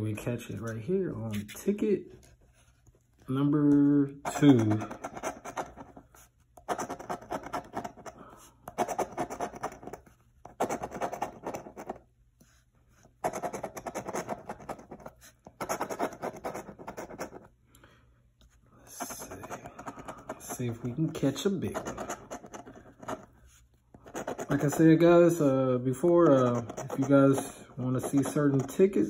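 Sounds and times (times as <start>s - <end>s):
coin scratching lottery ticket: 4.3s - 12.0s, 13.2s - 17.5s, 18.9s - 23.3s, 24.0s - 29.0s.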